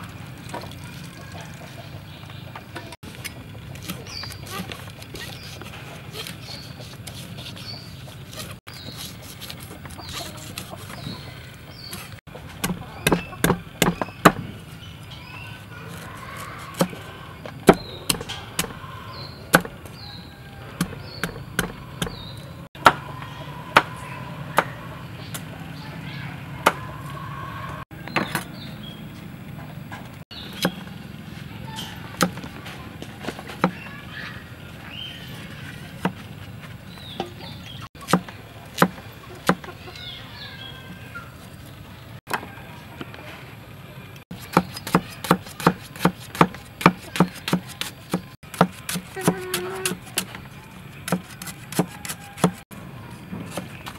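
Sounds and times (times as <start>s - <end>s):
cleaver chopping on wooden block: 12.6s - 14.5s, 17.6s - 18.8s, 19.5s - 20.1s, 20.8s - 23.0s, 38.0s - 39.7s, 44.3s - 50.4s, 51.0s - 52.6s.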